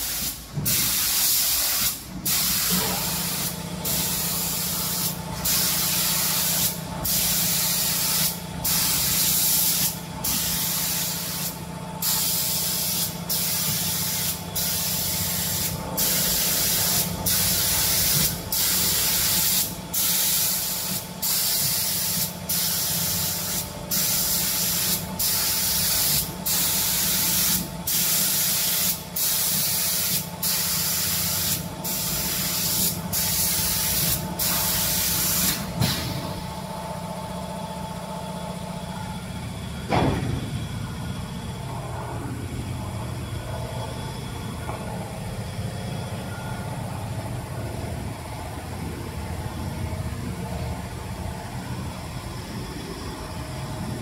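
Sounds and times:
spray guns hissing: 0:00.0 - 0:36.0
steady low hum: 0:00.0 - 0:54.0.

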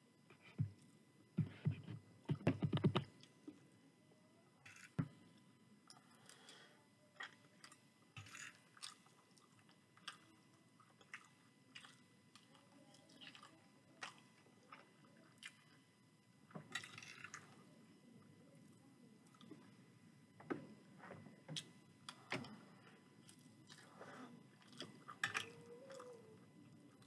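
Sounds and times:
wet chewing sounds: 0:07.2 - 0:15.8, 0:23.2 - 0:26.2.

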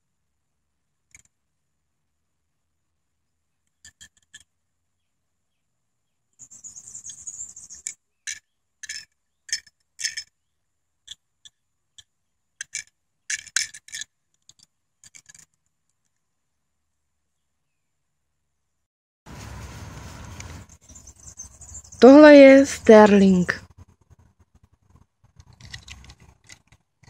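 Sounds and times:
toy car clicking and rattling: 0:03.8 - 0:04.5, 0:07.0 - 0:10.3, 0:11.0 - 0:15.6, 0:24.8 - 0:27.0
short rustle: 0:19.3 - 0:21.1.

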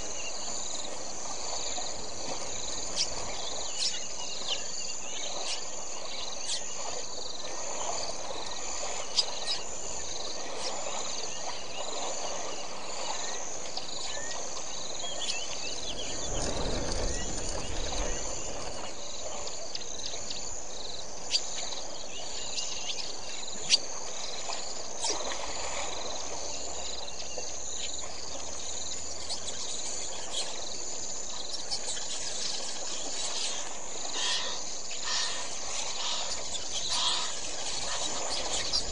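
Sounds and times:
insects buzzing: 0:00.0 - 0:38.9
low wash of noise: 0:14.9 - 0:19.8.

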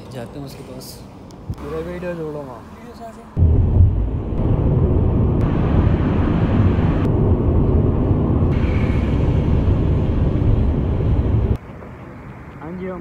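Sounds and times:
car road and wind noise: 0:00.0 - 0:13.0.

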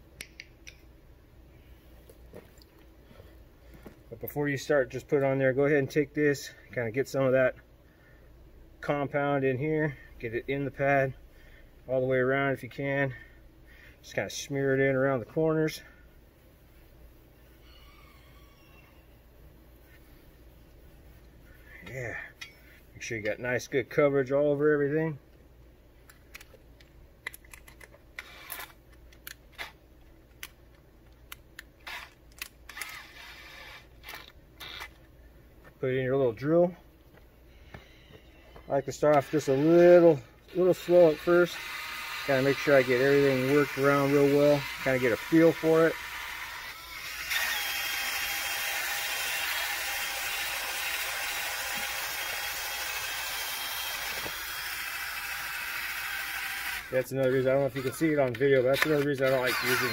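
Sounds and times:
drill chuck ratcheting: 0:27.4 - 0:28.8, 0:31.8 - 0:35.0, 0:40.5 - 0:59.9
drill chuck clicks and rattles: 0:31.5 - 0:35.0.

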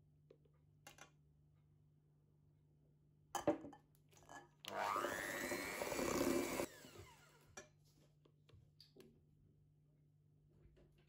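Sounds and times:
electric hand mixer whirring: 0:04.7 - 0:07.4.

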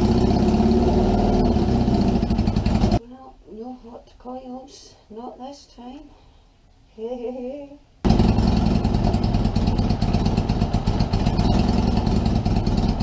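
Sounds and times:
motorcycle engine running: 0:00.0 - 0:03.0, 0:08.1 - 0:13.0.

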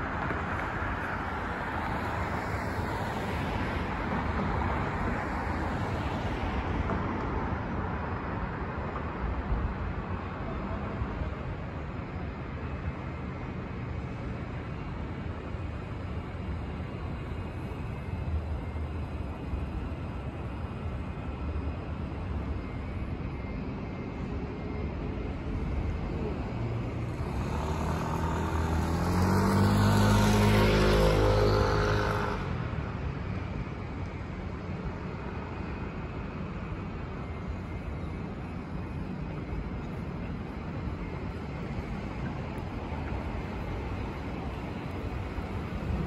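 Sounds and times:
street traffic hum: 0:00.0 - 0:46.0
motor vehicle passing: 0:26.8 - 0:32.7.

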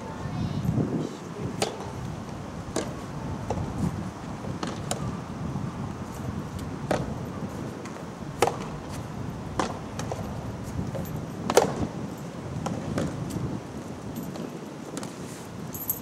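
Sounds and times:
rackets hitting ball: 0:11.5 - 0:11.8.

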